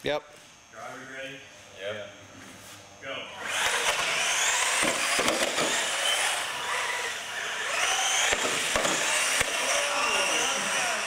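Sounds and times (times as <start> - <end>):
toy truck electric motors whining: 3.4 - 11.0.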